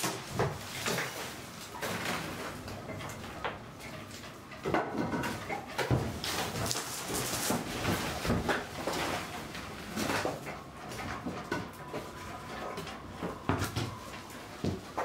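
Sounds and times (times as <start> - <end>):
plastic sheet crackling: 6.0 - 10.5.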